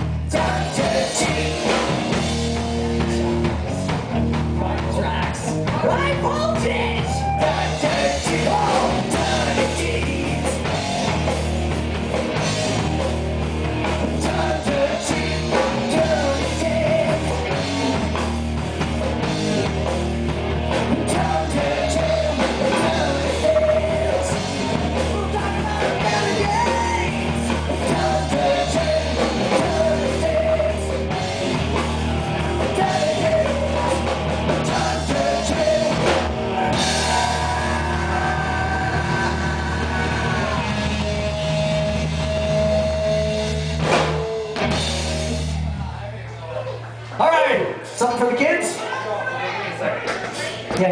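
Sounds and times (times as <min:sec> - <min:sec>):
drum kit: 0:00.0 - 0:46.1
electric guitar: 0:00.0 - 0:47.2
bass guitar: 0:00.0 - 0:50.9
man singing: 0:00.2 - 0:02.2, 0:07.4 - 0:10.8, 0:14.0 - 0:17.7, 0:21.0 - 0:31.2, 0:32.6 - 0:36.3.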